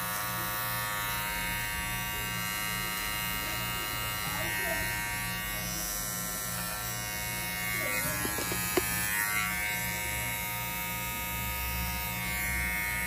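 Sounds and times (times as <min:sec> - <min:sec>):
hair trimmer buzzing: 0:00.0 - 0:13.0.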